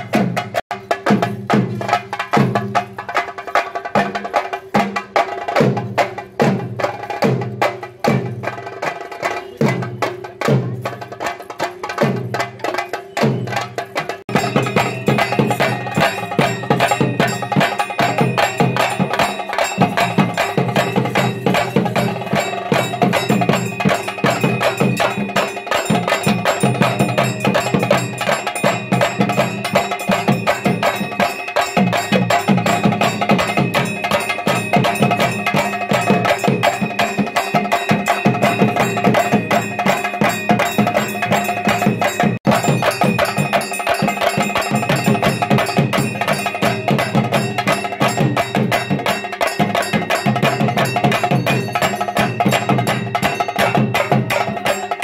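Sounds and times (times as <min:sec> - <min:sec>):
fast drumming: 0:00.0 - 0:55.0
ringing metallic tones: 0:12.7 - 0:55.0.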